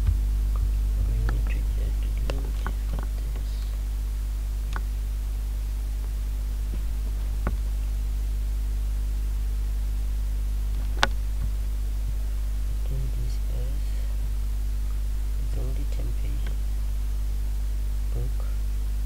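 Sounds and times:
clicks: 0:00.0 - 0:03.8, 0:04.7 - 0:04.9
electrical mains hum: 0:00.0 - 0:19.0
faint hiss: 0:00.0 - 0:19.0.

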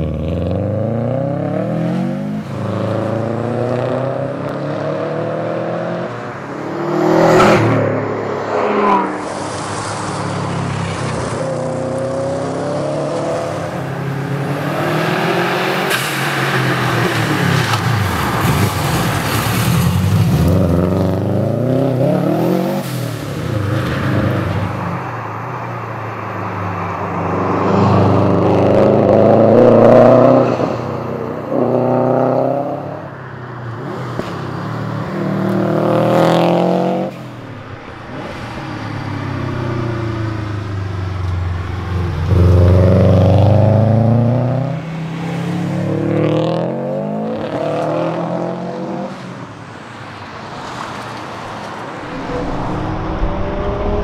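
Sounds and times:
car engine revving: 0:51.9 - 0:54.0.

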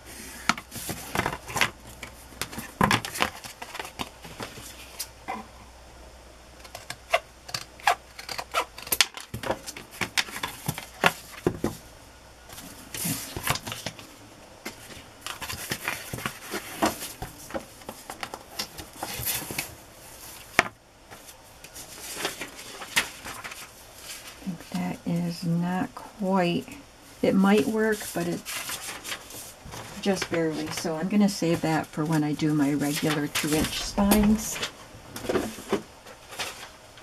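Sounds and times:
paper and card rustling: 0:00.5 - 0:05.1, 0:12.5 - 0:20.5, 0:21.1 - 0:24.4, 0:27.6 - 0:36.7.

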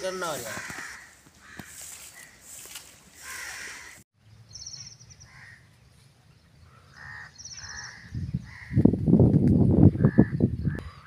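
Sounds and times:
crows cawing: 0:00.0 - 0:04.0, 0:05.2 - 0:05.7, 0:06.7 - 0:08.8
wind buffeting microphone: 0:07.6 - 0:11.0.

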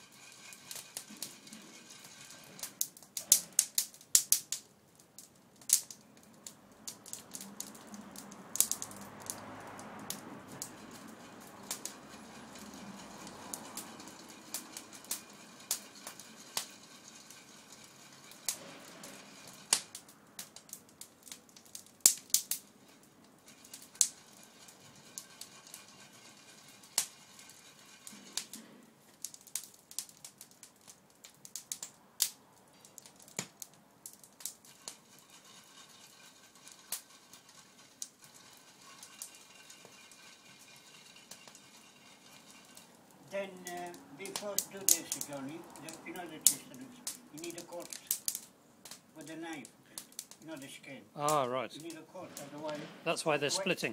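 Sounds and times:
wood fire crackling: 0:00.0 - 0:53.9.

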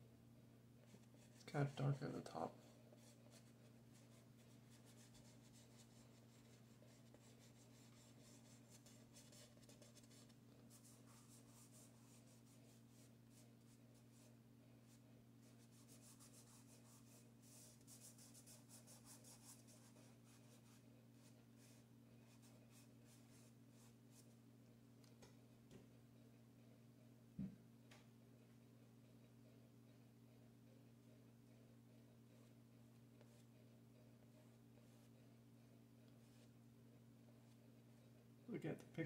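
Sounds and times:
steady low hum: 0:00.0 - 0:39.0
pastel scratching on paper: 0:02.6 - 0:14.4, 0:15.4 - 0:24.3.

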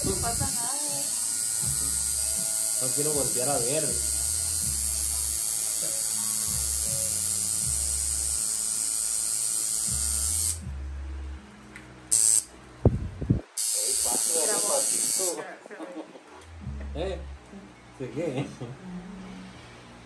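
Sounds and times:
tattoo machine buzzing: 0:00.0 - 0:10.7, 0:12.1 - 0:12.5, 0:13.6 - 0:15.4.

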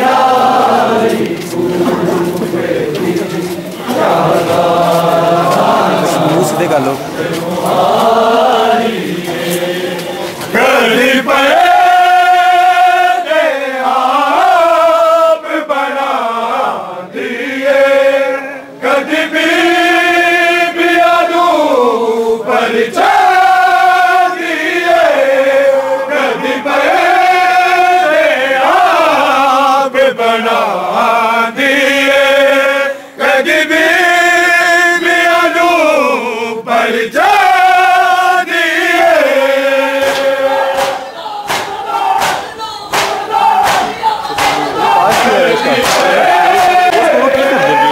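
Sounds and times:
man chanting a lament: 0:01.8 - 0:08.1, 0:43.2 - 0:47.9.

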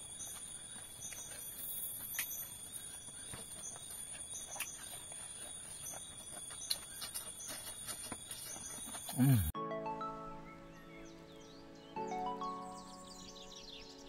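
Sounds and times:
night insects trilling: 0:00.0 - 0:09.5.

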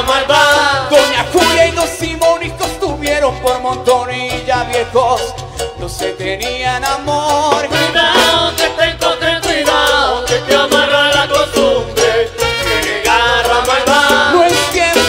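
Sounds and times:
trumpet: 0:00.0 - 0:02.8, 0:07.6 - 0:11.4, 0:12.0 - 0:15.0
trombone: 0:00.0 - 0:03.2, 0:06.4 - 0:15.0
congas: 0:00.0 - 0:15.0
percussion beat: 0:00.0 - 0:15.0.

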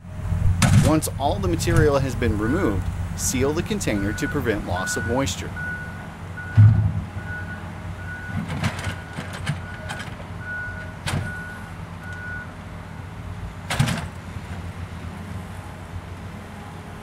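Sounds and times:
engine rumble: 0:00.0 - 0:17.0
backup alarm beeping: 0:02.4 - 0:02.8, 0:03.8 - 0:08.4.

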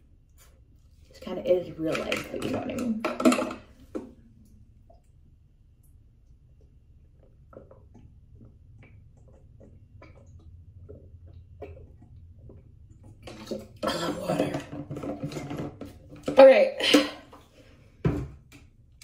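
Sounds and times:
clattering and rummaging: 0:13.3 - 0:17.5.

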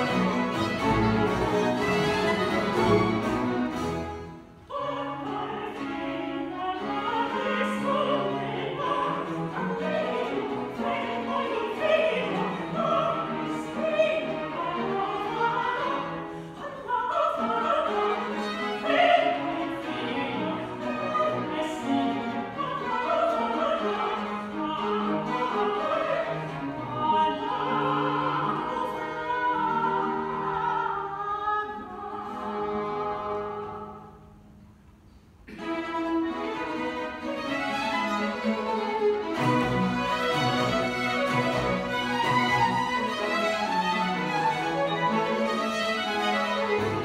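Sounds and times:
bowed strings ensemble: 0:00.0 - 0:47.0
woman singing opera: 0:04.6 - 0:34.2.

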